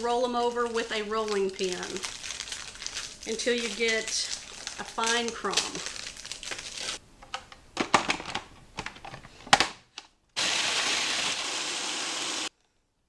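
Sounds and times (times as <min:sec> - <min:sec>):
food processor grinding: 0:10.4 - 0:12.5.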